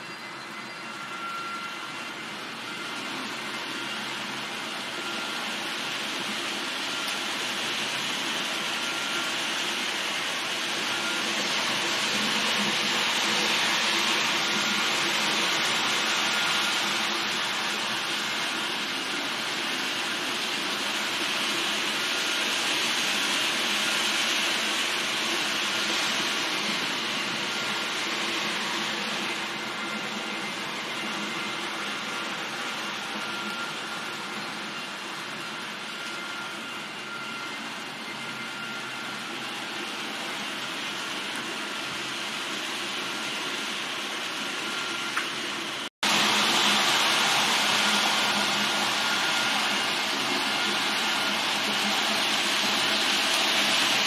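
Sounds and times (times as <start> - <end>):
faint steady locomotive tones: 0.0 - 54.0.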